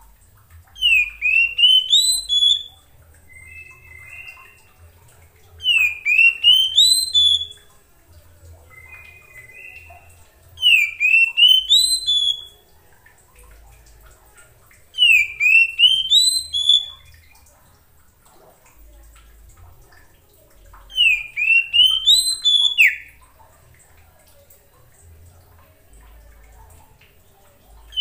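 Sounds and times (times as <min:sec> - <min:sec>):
bird singing whistled notes: 0:00.8 - 0:04.8, 0:05.6 - 0:07.7, 0:08.7 - 0:12.6, 0:15.0 - 0:17.1, 0:20.9 - 0:23.1.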